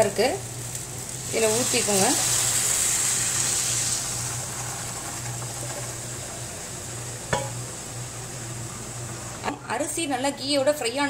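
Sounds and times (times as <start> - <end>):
food sizzling in pan: 0.0 - 11.0
water poured into hot pan: 0.5 - 6.6.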